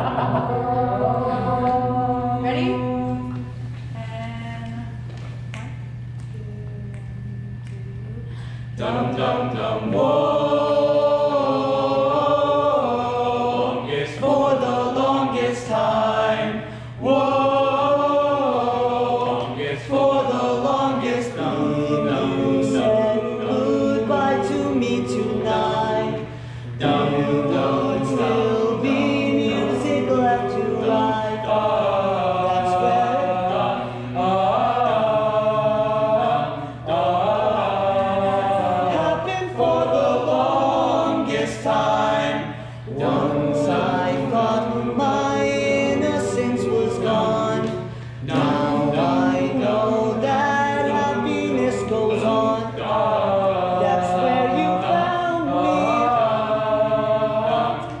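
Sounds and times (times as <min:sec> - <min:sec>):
boys singing a cappella harmony: 0:00.0 - 0:05.1, 0:06.0 - 0:58.0.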